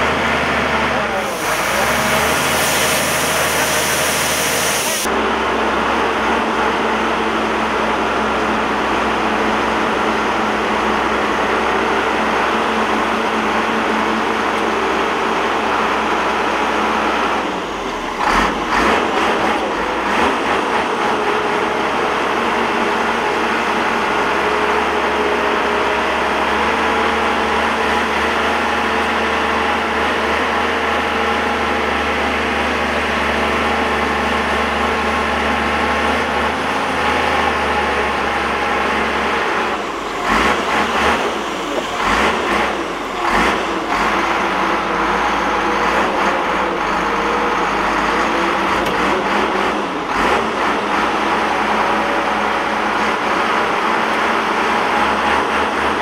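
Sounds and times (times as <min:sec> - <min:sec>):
heavy diesel engines under load: 0:00.0 - 0:56.0.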